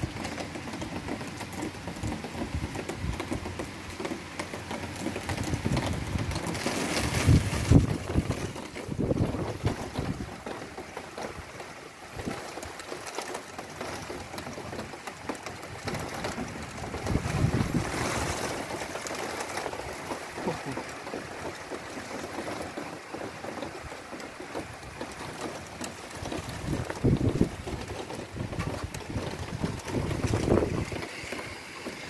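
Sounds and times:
steady rain hiss: 0.0s - 32.0s
wind buffeting microphone: 5.0s - 10.6s, 15.5s - 18.9s, 24.6s - 31.9s.

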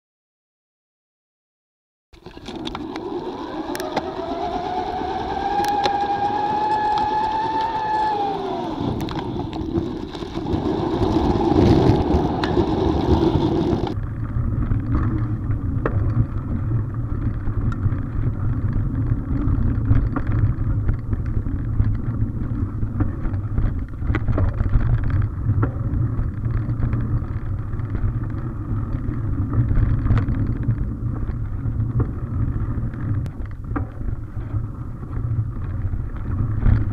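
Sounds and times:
humming tone: 2.2s - 16.7s
small clicks and rattles: 2.2s - 36.9s
wind buffeting microphone: 2.6s - 36.9s.

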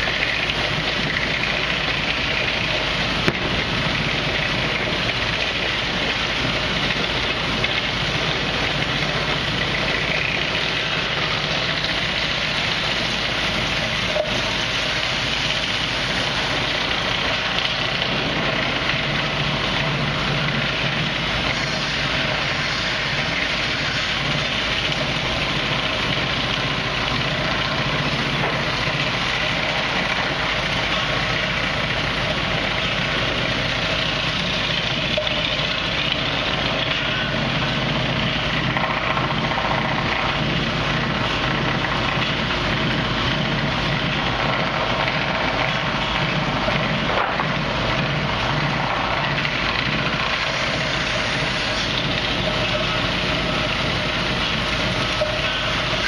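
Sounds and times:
sawmill machinery running: 0.0s - 56.0s
sharp knock: 3.2s - 3.8s.

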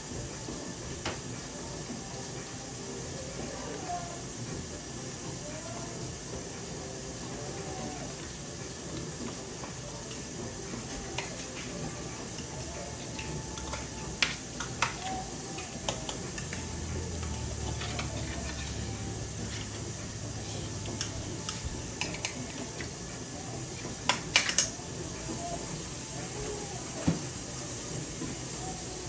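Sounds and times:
steady hiss: 0.0s - 29.0s
fork clinking and scraping pan: 16.3s - 19.9s.

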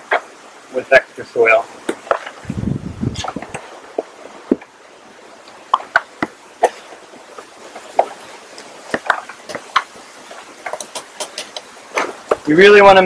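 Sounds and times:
soil scraping against plastic pot: 8.9s - 12.5s.

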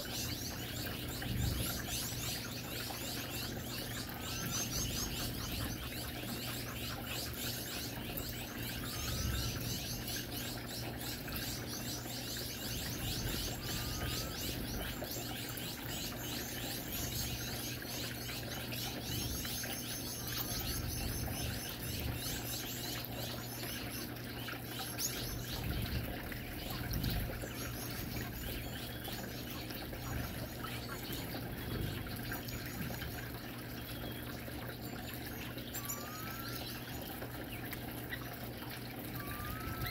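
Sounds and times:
finches chirping: 0.0s - 33.2s, 33.9s - 38.2s, 39.1s - 39.9s
fountain water trickling: 0.0s - 39.9s
low steady hum: 0.0s - 39.9s.

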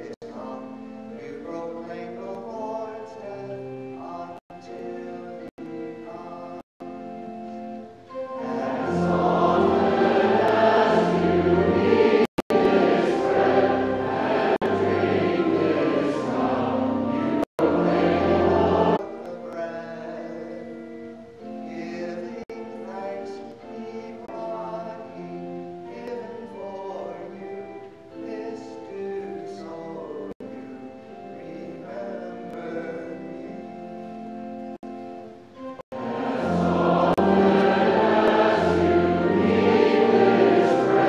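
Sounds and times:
low held accompaniment notes: 0.0s - 41.0s
choir singing: 8.1s - 19.6s, 35.9s - 41.0s.

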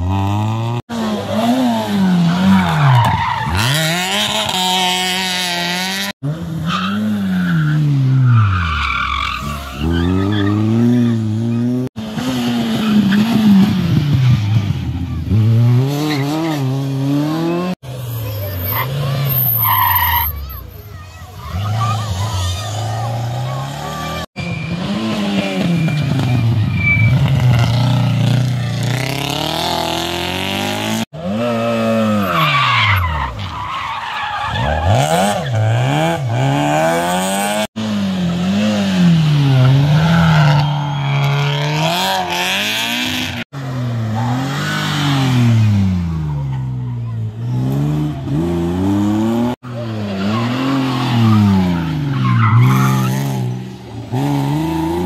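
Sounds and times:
rally car engines revving: 0.0s - 55.0s
tyres skidding and squealing: 0.0s - 55.0s.

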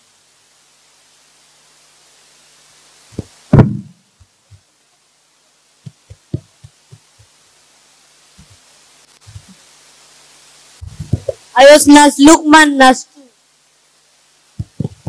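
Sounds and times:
microphone handling thumps: 3.1s - 4.6s, 5.8s - 7.3s, 9.2s - 9.6s, 10.8s - 11.5s, 14.6s - 15.0s.

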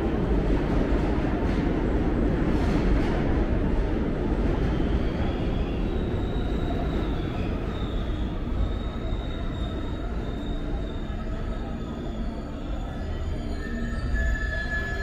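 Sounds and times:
subway train rumbling: 0.0s - 15.0s
high wheel squeal: 5.2s - 15.0s.

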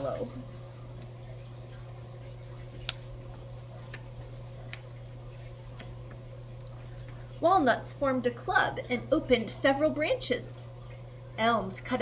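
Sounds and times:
steady low hum: 0.0s - 12.0s
book pages turning: 2.6s - 6.2s.

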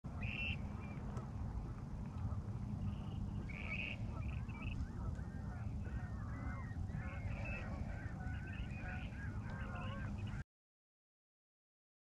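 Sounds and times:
wind rumbling on microphone: 0.1s - 10.4s
short bird calls: 0.2s - 1.1s, 2.8s - 10.4s.

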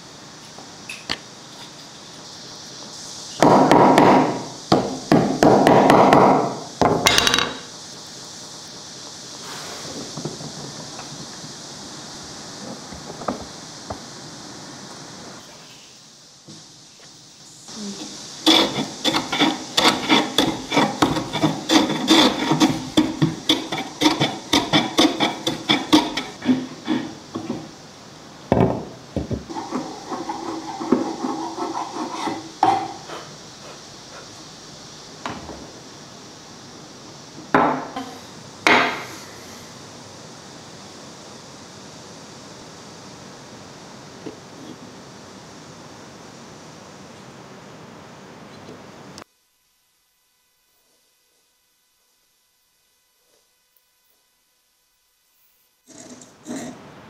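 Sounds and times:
hand tool strokes on wood: 17.7s - 27.8s, 29.5s - 34.3s.

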